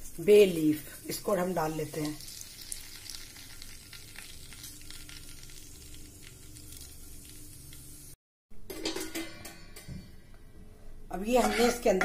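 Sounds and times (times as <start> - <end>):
spices sizzling and crackling in oil: 0.0 - 8.2.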